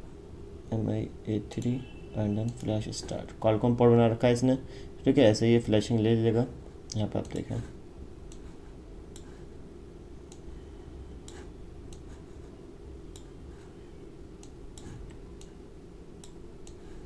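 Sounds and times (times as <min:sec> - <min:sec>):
steady low hum: 0:00.0 - 0:17.0
computer mouse clicking: 0:08.3 - 0:09.4, 0:10.3 - 0:10.5, 0:11.2 - 0:12.2, 0:13.1 - 0:13.4, 0:14.4 - 0:15.6, 0:16.2 - 0:16.9.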